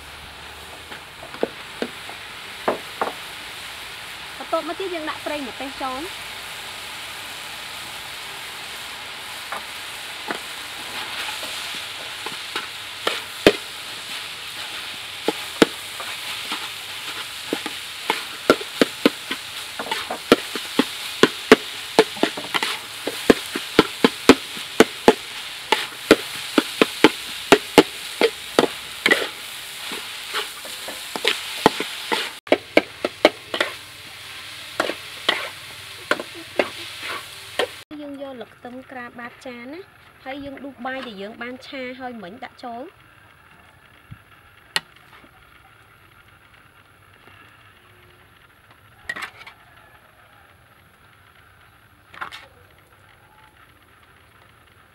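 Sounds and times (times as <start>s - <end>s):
food sizzling in a wok: 0.0s - 54.9s
metal spatula scraping a wok: 9.4s - 37.8s, 49.1s - 49.6s.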